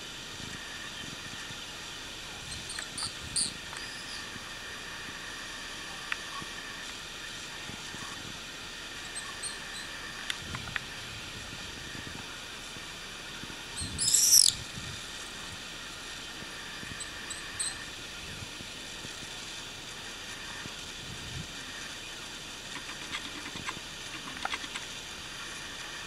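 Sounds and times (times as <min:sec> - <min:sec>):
background hiss: 0:00.0 - 0:26.0
faint high chirps: 0:02.5 - 0:04.4, 0:09.0 - 0:10.0, 0:13.8 - 0:14.6
swallow shrill cry: 0:14.0 - 0:14.6.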